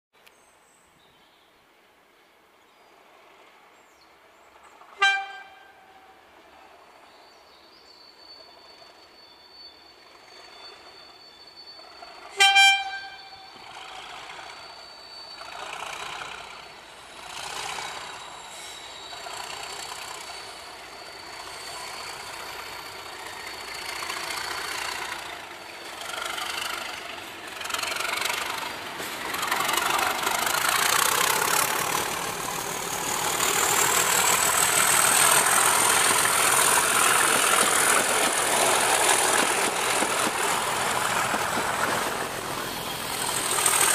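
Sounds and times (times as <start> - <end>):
diesel train passing: 2.9 - 43.9
locomotive horn toot: 5.0 - 6.2, 12.2 - 13.5.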